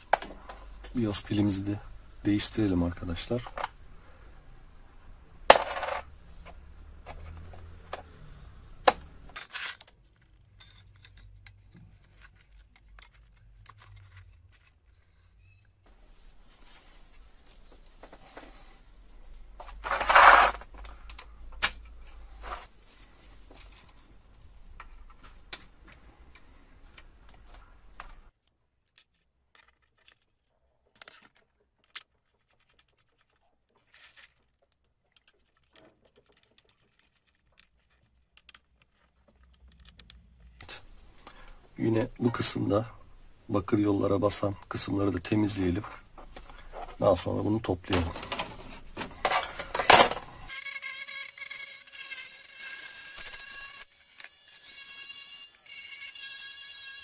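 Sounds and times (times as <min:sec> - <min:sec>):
hand tools clicking and rattling: 0:28.9 - 0:40.5.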